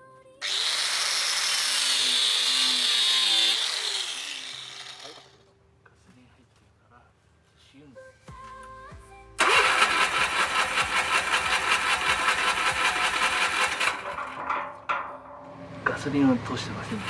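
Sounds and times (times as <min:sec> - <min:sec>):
small gasoline engine running: 0:00.4 - 0:05.4, 0:09.4 - 0:14.4, 0:16.5 - 0:17.0.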